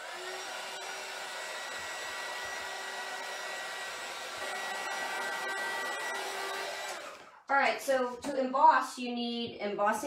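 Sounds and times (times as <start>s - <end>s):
heat gun fan whining: 0.0s - 7.4s.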